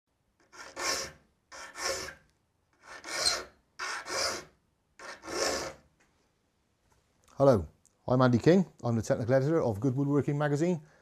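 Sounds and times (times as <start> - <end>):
file rasping on saw teeth: 0.4 - 2.2, 2.8 - 5.8.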